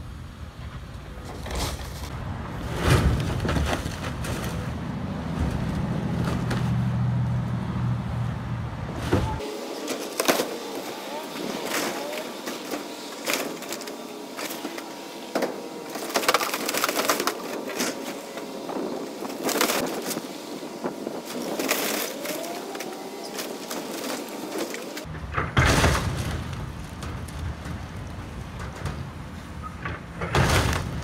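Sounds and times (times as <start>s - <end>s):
fiberglass cracking and crunching: 15.9s - 18.1s.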